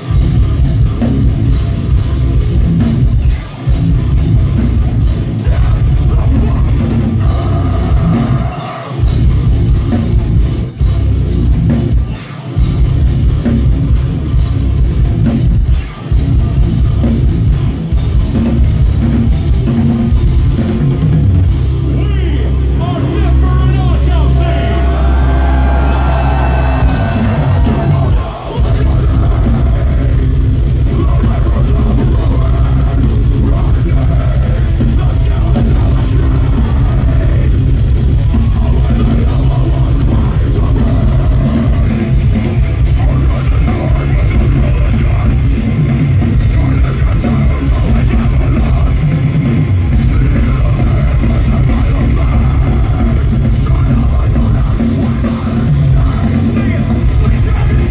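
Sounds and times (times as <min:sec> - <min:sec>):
live metal band playing: 0:00.0 - 0:57.9
screamed vocal: 0:07.3 - 0:09.1, 0:24.5 - 0:29.2.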